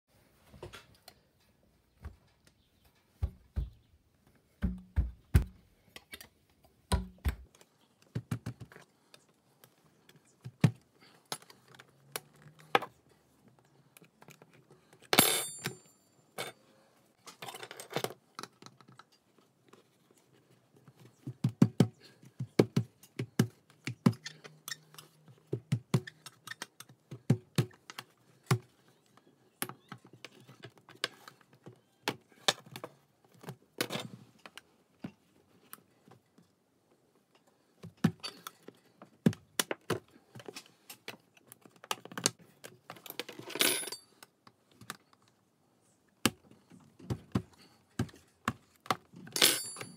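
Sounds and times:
ringing metallic clink: 0:15.2 - 0:16.6, 0:49.4 - 0:49.9.

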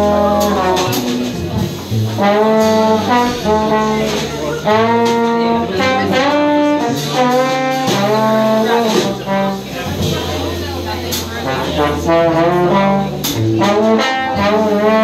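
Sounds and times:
jazz trombone solo: 0:00.0 - 0:15.0
plucked upright bass: 0:00.0 - 0:15.0.

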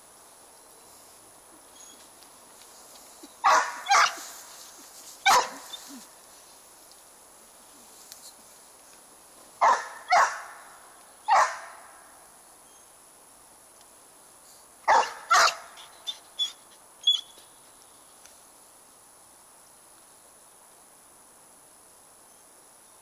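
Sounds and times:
dog barking: 0:03.4 - 0:04.4, 0:05.2 - 0:06.0, 0:09.6 - 0:10.6, 0:11.3 - 0:11.8, 0:14.9 - 0:15.9.

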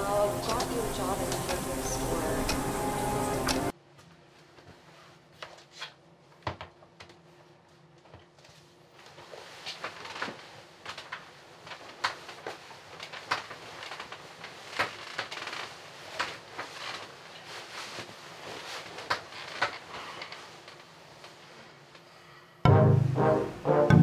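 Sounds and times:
bedding rustling: 0:00.0 - 0:03.7, 0:08.4 - 0:21.9.

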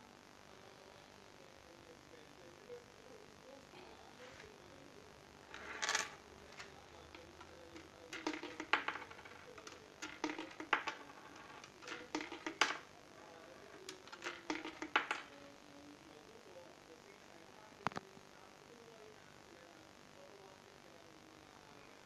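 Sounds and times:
coins dropping into coin slot: 0:05.6 - 0:06.2, 0:08.1 - 0:12.8, 0:13.9 - 0:15.3.

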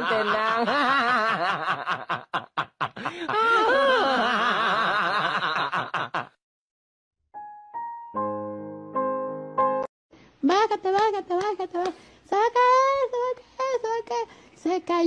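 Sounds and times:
man giggling: 0:00.0 - 0:06.4.

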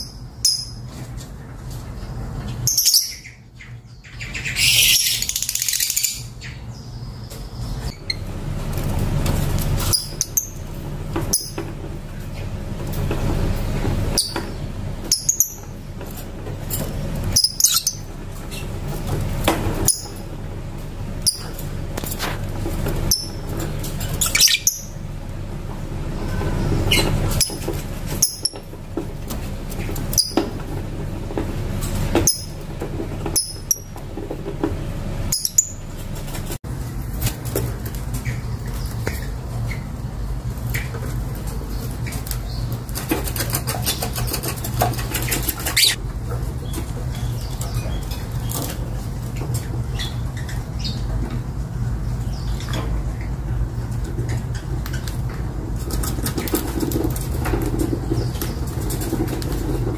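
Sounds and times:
lovebirds chirping: 0:01.9 - 0:08.4, 0:09.8 - 0:12.5, 0:14.1 - 0:15.8, 0:16.7 - 0:20.4, 0:21.2 - 0:21.7, 0:23.0 - 0:25.1, 0:26.2 - 0:28.7, 0:29.7 - 0:30.6, 0:32.2 - 0:34.0, 0:35.2 - 0:36.2, 0:45.3 - 0:46.0.

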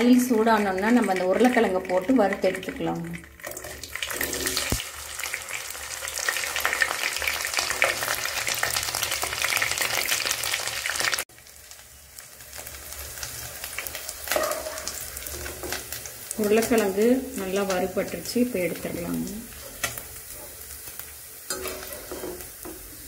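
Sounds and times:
potatoes sizzling in hot oil: 0:00.0 - 0:23.0
spatula stirring: 0:14.3 - 0:16.1, 0:19.5 - 0:23.0.

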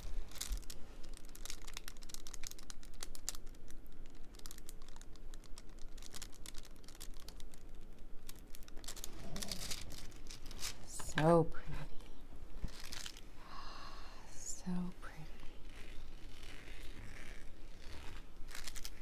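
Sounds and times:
crinkling: 0:00.0 - 0:13.6, 0:14.7 - 0:19.0.

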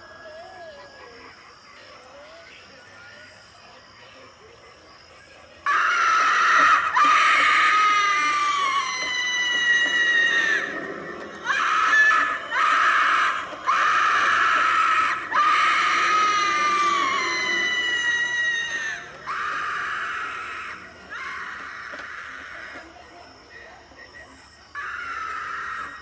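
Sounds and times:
high thin screams from speaker: 0:05.7 - 0:22.8.

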